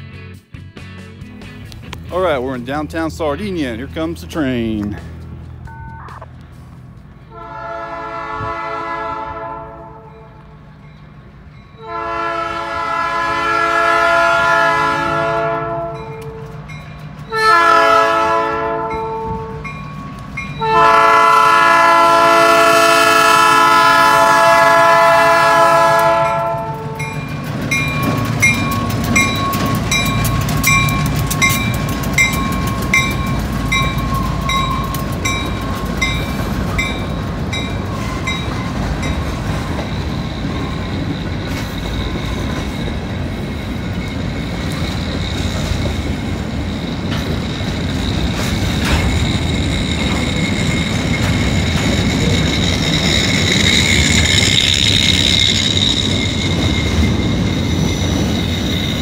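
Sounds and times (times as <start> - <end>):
locomotive horn blast: 7.3 - 10.4, 11.8 - 16.5, 17.3 - 19.8, 20.6 - 27.2
crossing bell ringing: 9.7 - 12.8, 15.4 - 22.6, 24.3 - 45.9, 46.9 - 59.0
train wheels clattering: 24.7 - 59.0.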